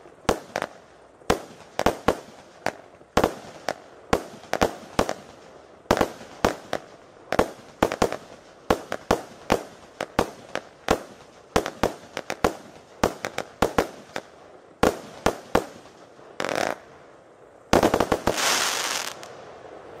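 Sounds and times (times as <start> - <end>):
firework battery shots: 17.8 - 19.4.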